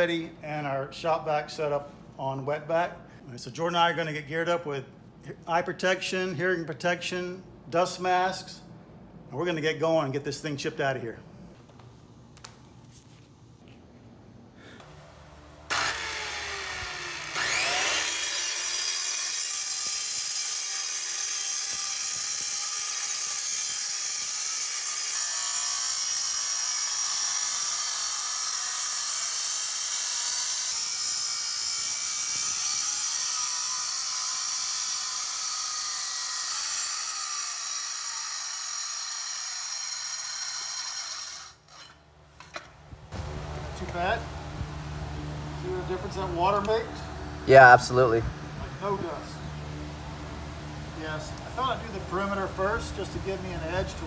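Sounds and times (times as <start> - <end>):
circular saw cutting concrete: 15.7 - 42.0.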